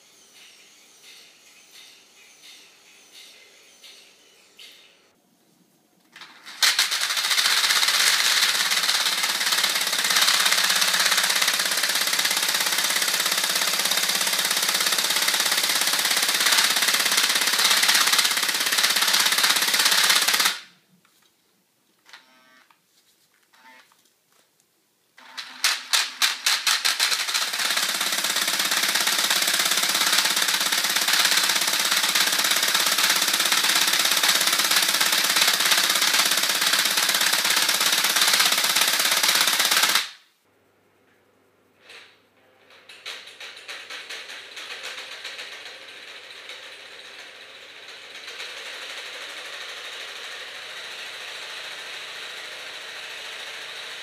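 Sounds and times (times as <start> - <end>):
cordless drill spinning: 6.4 - 20.6, 27.2 - 40.0.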